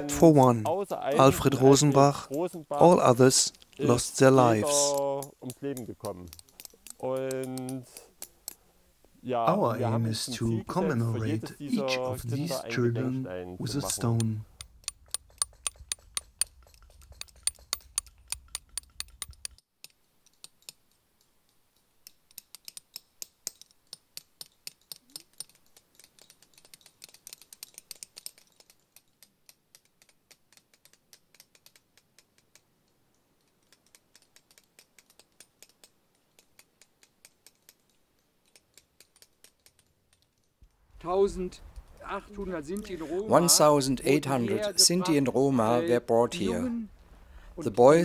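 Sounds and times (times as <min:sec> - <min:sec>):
hammer tapping chisel on stone: 0:04.9 - 0:08.6, 0:13.9 - 0:20.8.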